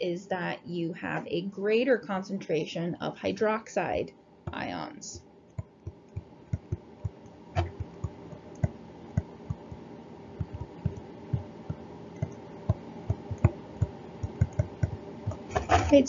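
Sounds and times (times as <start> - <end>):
faint steady hum: 0.0 - 16.0
stylus tapping on tablet screen: 5.5 - 9.8, 10.4 - 15.7.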